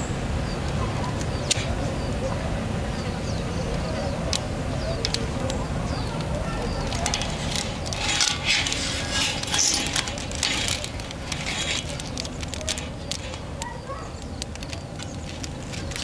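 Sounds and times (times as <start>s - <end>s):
objects rustling and clinking: 6.8s - 13.6s, 14.2s - 16.0s.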